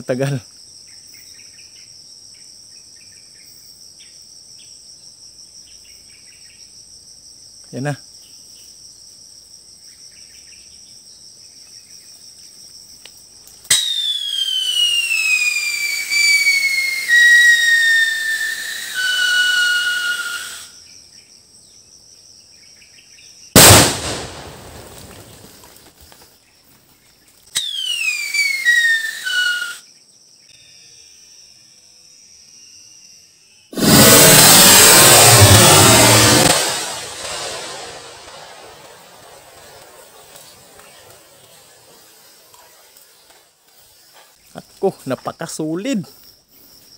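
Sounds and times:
insects buzzing: 0:00.0 - 0:46.9
firecracker whistle falling in pitch: 0:13.7 - 0:20.7, 0:27.6 - 0:29.8, 0:33.8 - 0:40.0
firecracker bang: 0:23.6 - 0:25.8, 0:33.8 - 0:41.2.

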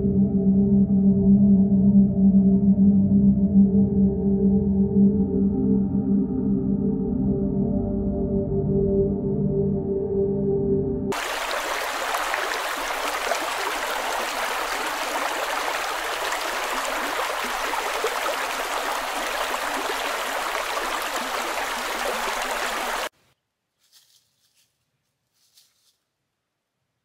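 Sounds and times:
creek water rushing over stones: 0:11.1 - 0:23.1.

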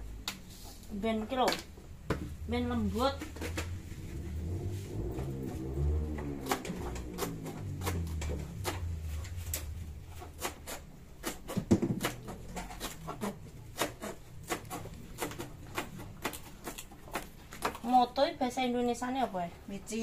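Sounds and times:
knife chopping on cutting board: 0:06.4 - 0:17.8.

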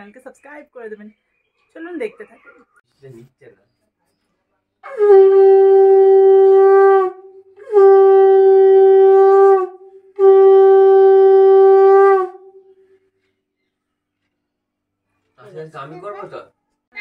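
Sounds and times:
conch shell blasts: 0:04.8 - 0:12.6.

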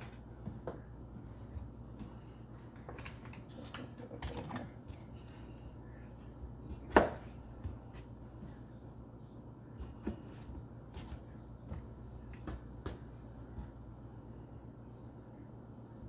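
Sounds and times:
knife chopping on cutting board: 0:06.8 - 0:08.0.

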